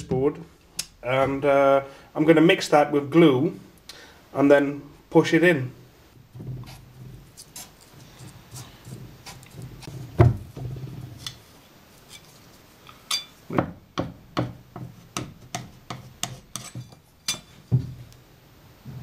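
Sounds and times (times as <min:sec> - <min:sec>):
wooden stick stirring filler: 0:06.2 - 0:18.1
knife scraping paste: 0:06.6 - 0:10.1, 0:15.5 - 0:17.6.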